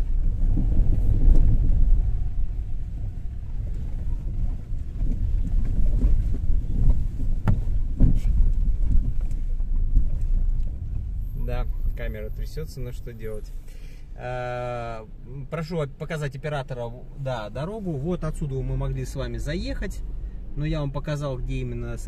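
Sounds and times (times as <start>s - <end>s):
car jolting over bumps: 0.0s - 13.5s
car road rumble: 0.0s - 22.0s.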